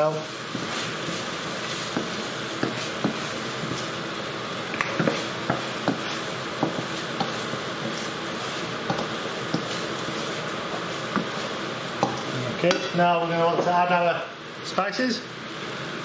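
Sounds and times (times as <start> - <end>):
tomato paste sizzling in a pan: 0.0 - 16.0
spatula knocking and scraping pan: 0.5 - 3.9, 4.8 - 13.8.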